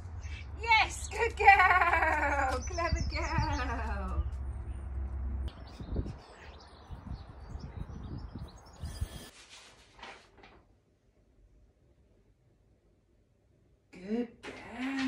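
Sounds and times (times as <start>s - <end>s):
small birds chirping: 0.0s - 9.3s.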